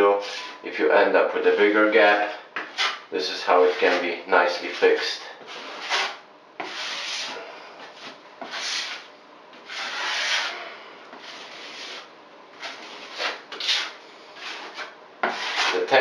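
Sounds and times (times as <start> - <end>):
hand rubbing wet membrane on wall: 4.6 - 16.0.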